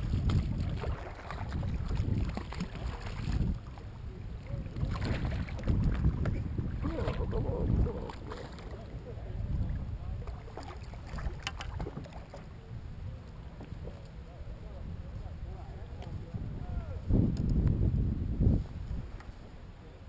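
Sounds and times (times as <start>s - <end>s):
water splashing: 0.0s - 12.5s
wind buffeting microphone: 0.0s - 19.3s.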